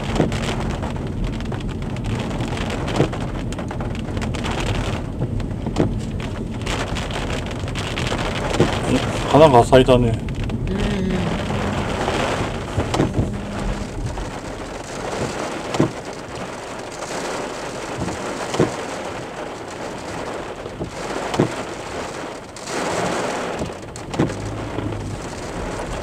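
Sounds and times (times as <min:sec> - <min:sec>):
heavy rain drumming on car: 0:00.0 - 0:26.0.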